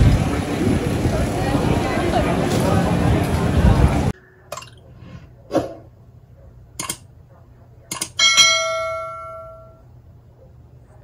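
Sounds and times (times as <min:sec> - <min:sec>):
notification bell ding: 0:08.2 - 0:09.8.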